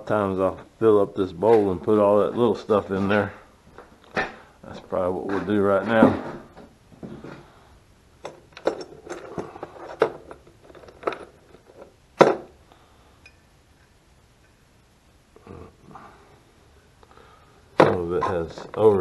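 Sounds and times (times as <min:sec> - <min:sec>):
small metal parts clinking: 0:08.2 - 0:12.0.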